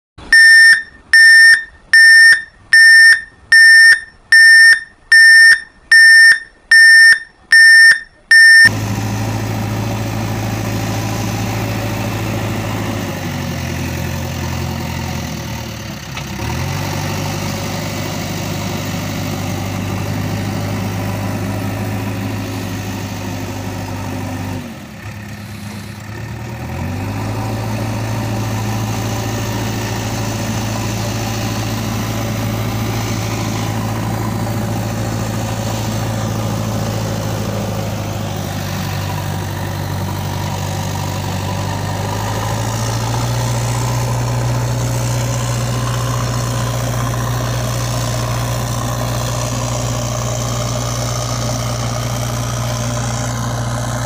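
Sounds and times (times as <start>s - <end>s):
diesel engine idling: 0.2s - 54.0s
loud piercing electronic beep: 0.3s - 8.7s.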